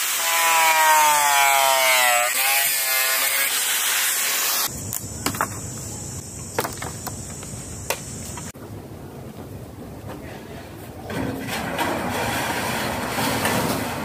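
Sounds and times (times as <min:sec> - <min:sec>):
power tool rasping wood: 0:00.0 - 0:04.7.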